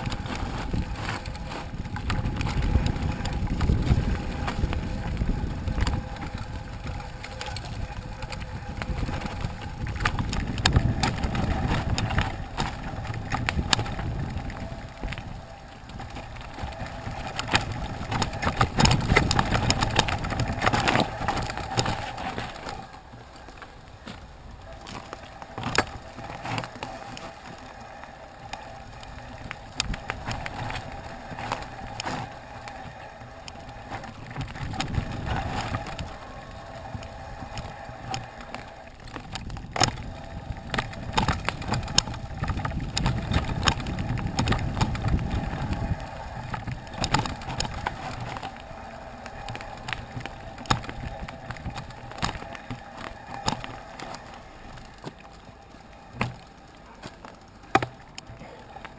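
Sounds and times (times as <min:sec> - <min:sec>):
bike rattling: 0:00.0 - 0:58.9
bike tyres on dirt and leaves: 0:00.0 - 0:58.9
low rumbling: 0:00.0 - 0:58.9
sharp knocks over bumps: 0:56.1 - 0:58.9.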